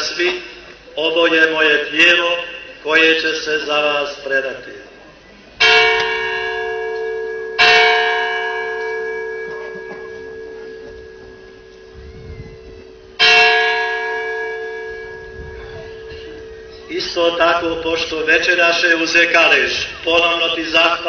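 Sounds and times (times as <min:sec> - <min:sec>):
bell ringing: 0:05.6 - 0:19.4.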